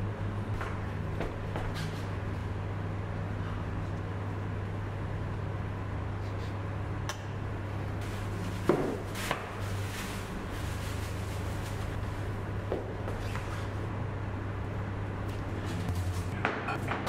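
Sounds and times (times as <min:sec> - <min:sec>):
steady low hum: 0:00.0 - 0:17.0
plastic rustling: 0:08.0 - 0:12.3.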